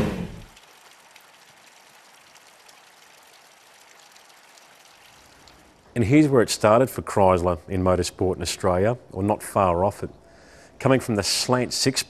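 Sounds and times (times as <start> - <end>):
car revving sound effect: 0.0 - 0.5
faint steady hiss: 0.0 - 12.0.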